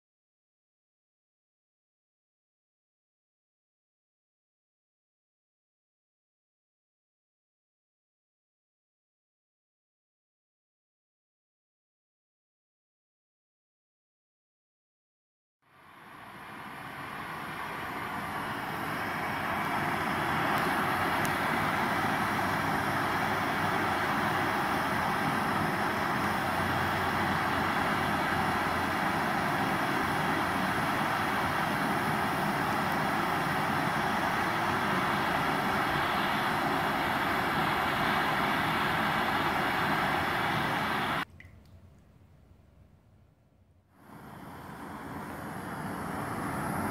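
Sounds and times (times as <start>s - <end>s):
gas torch flames hissing: 15.7s - 41.3s, 44.0s - 46.9s.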